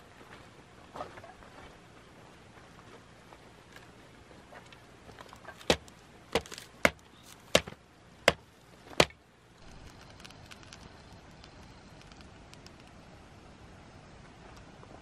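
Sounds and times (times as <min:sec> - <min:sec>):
wood chopping: 0:05.5 - 0:09.2.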